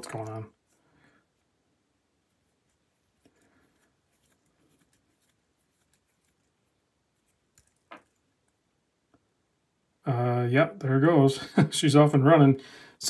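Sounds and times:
wristwatch rustles and clicks: 0:02.3 - 0:08.6.

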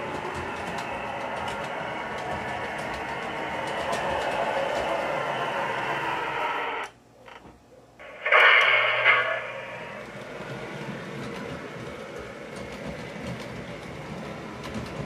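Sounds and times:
model train rolling on track: 0:00.0 - 0:06.9, 0:08.0 - 0:15.0
low hum: 0:08.0 - 0:10.7.

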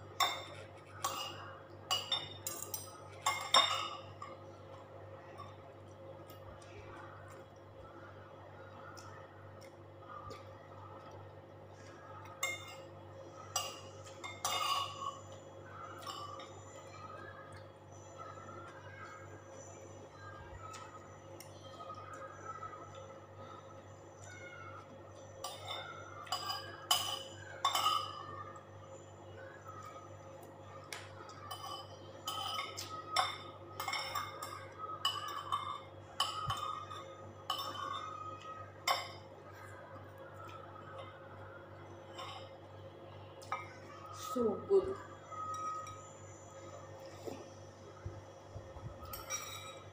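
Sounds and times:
faint low hum: 0:00.0 - 0:49.9
cutlery clinking on plates: 0:00.2 - 0:04.4, 0:13.5 - 0:15.3, 0:25.4 - 0:28.3, 0:31.4 - 0:38.2, 0:49.0 - 0:49.9
cutlery clinking on plate: 0:49.0 - 0:49.9.

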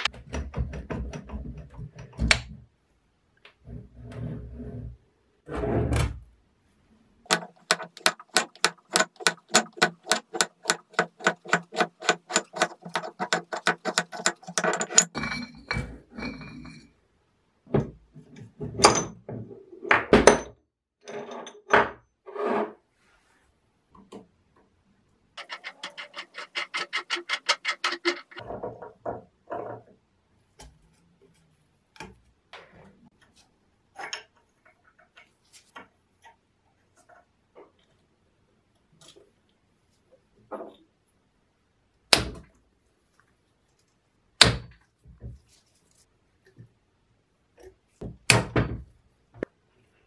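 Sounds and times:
rapid metallic clicking: 0:07.3 - 0:15.1, 0:25.4 - 0:28.4
metal tool parts knocking: 0:07.3 - 0:15.5, 0:25.4 - 0:28.4.

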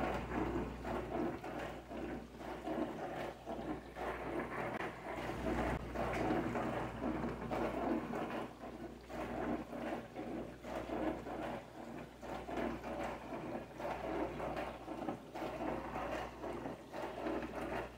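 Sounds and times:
low steady hum: 0:00.0 - 0:09.9
water spraying in dishwasher: 0:00.0 - 0:17.9.

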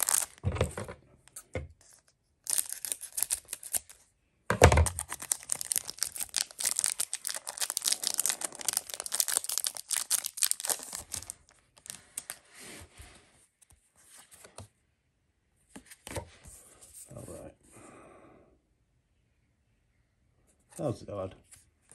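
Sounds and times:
cards rustling: 0:00.0 - 0:00.4, 0:01.8 - 0:04.0, 0:04.8 - 0:12.5
foil wrapper crinkling: 0:00.0 - 0:00.4, 0:02.4 - 0:04.0, 0:04.8 - 0:12.4.

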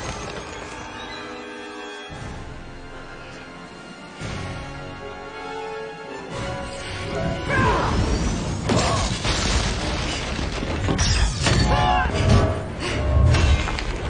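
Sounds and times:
orchestral score held notes: 0:01.0 - 0:07.9
crashes and impacts: 0:07.9 - 0:14.0.

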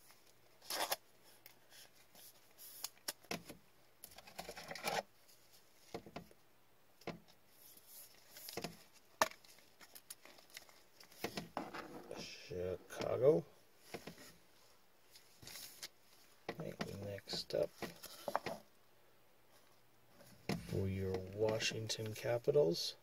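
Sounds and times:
plastic card sleeve rustling: 0:00.0 - 0:06.0, 0:07.5 - 0:12.3, 0:15.0 - 0:16.3, 0:17.6 - 0:18.6.

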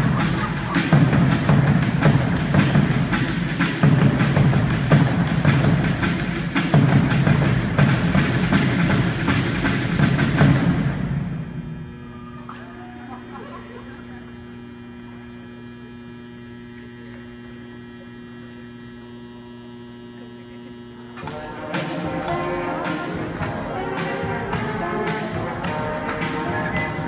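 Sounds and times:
drum beats: 0:00.0 - 0:12.0, 0:21.2 - 0:27.0
marching band brass: 0:00.0 - 0:12.1, 0:21.2 - 0:27.0
steady hum: 0:00.0 - 0:27.0.

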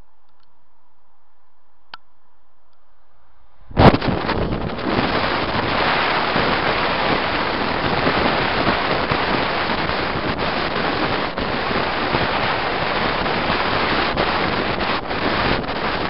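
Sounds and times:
wind rushing on microphone: 0:03.7 - 0:16.0.

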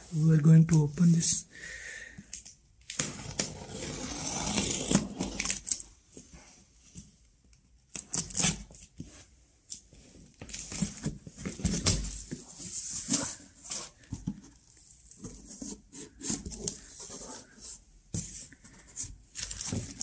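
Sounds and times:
packing tape tearing: 0:07.9 - 0:08.8
cardboard rustling and scraping: 0:10.0 - 0:20.0.

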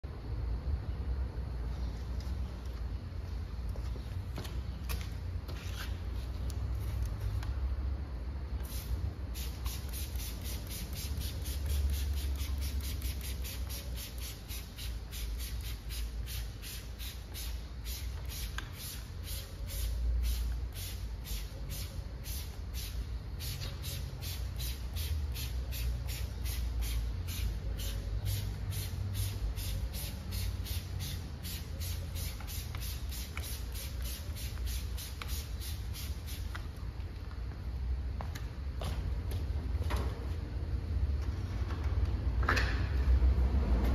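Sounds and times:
spray bottle squirting: 0:08.6 - 0:36.7.

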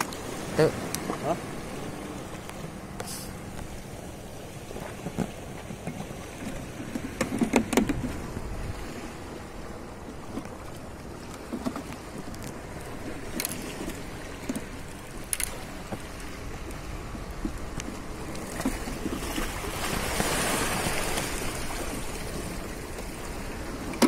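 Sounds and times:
sea waves washing: 0:00.0 - 0:24.0
wind: 0:00.0 - 0:24.0
sharp clicks and knocks: 0:05.0 - 0:08.1.

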